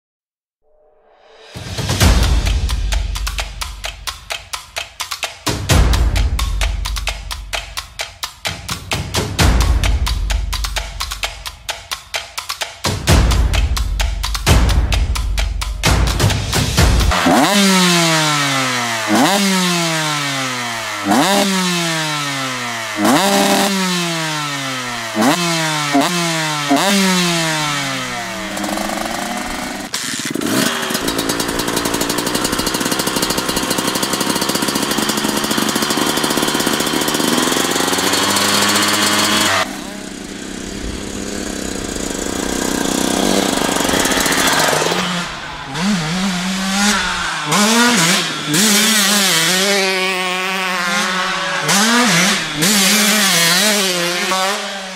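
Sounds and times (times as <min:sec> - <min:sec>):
motocross engines revving: 0:15.8 - 0:54.9.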